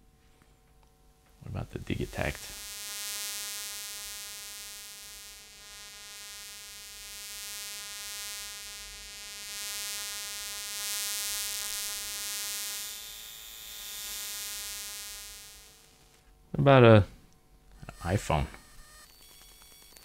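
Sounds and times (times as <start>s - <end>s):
electrical buzz with hiss: 1.3s - 16.8s.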